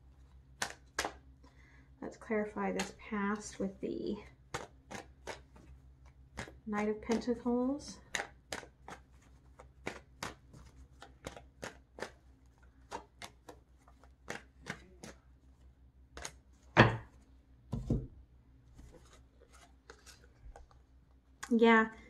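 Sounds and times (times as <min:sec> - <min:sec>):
cards being shuffled: 0:04.5 - 0:17.2, 0:18.7 - 0:21.6.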